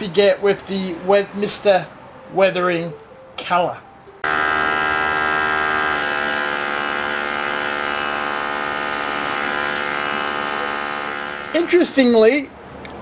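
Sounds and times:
airbrush compressor motor hum: 0:04.2 - 0:11.8.

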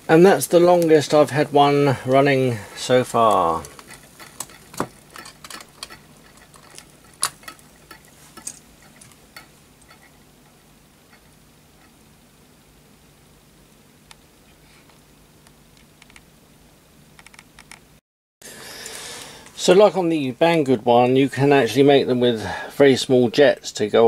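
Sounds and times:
steam engine hissing: 0:00.0 - 0:09.0.

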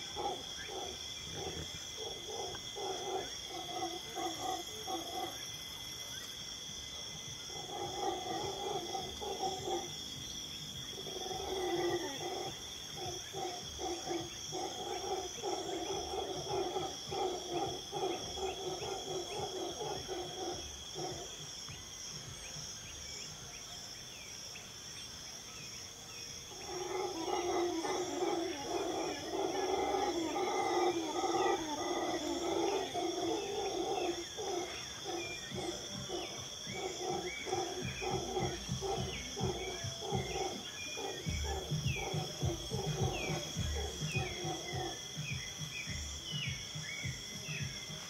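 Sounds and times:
low pulsing animal calls: 0:00.0 - 0:05.6, 0:07.2 - 0:21.6, 0:26.5 - 0:48.0
high-pitched insect drone: 0:26.6 - 0:48.0.

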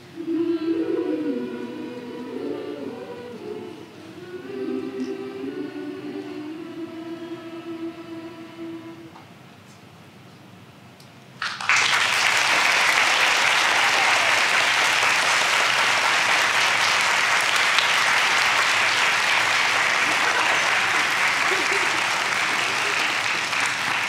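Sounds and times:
audience applauding: 0:11.4 - 0:24.0.

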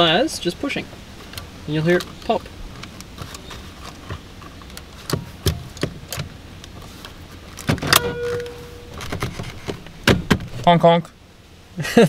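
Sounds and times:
car horn: 0:07.9 - 0:09.2.

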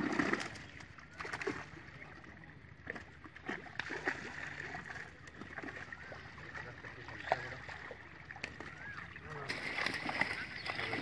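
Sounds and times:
fish splashing in net: 0:09.5 - 0:11.0.

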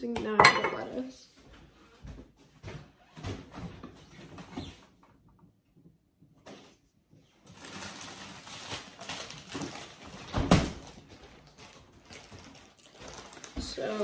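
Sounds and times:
lettuce rustling and crinkling: 0:07.4 - 0:14.0.

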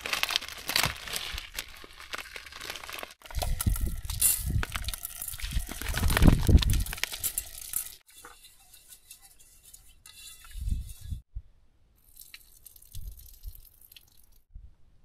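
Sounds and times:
plastic bag crinkling: 0:00.0 - 0:08.0.

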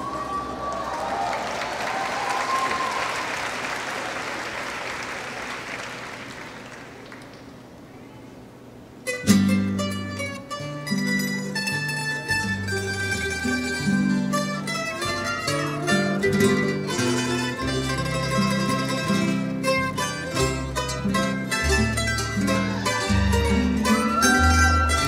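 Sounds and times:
audience applause: 0:00.0 - 0:07.5, 0:23.0 - 0:25.0
plucked string folk music: 0:09.0 - 0:25.0.

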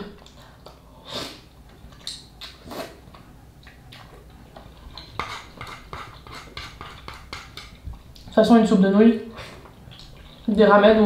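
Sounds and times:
chewing: 0:01.5 - 0:08.3, 0:09.4 - 0:10.5.

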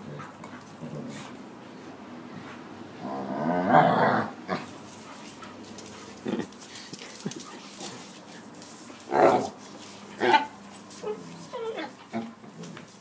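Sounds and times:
dog growling: 0:03.0 - 0:04.7.

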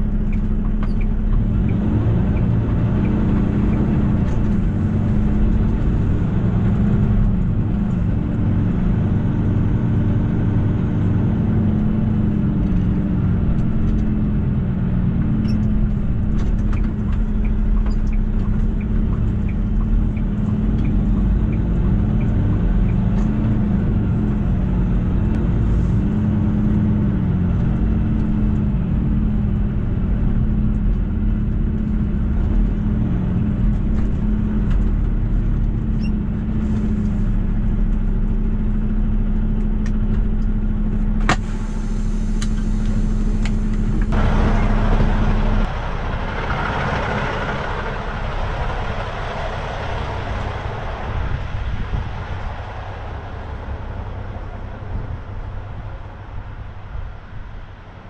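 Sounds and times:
truck diesel engine drone: 0:00.0 - 0:58.0
turn signal ticking: 0:15.2 - 0:24.2.

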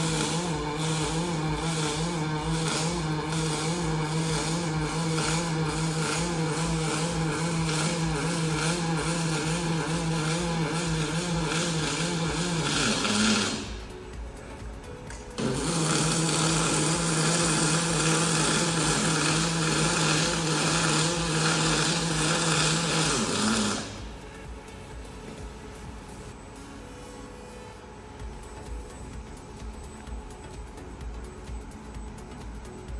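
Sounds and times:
arc welding buzzing crackle: 0:00.0 - 0:32.9.

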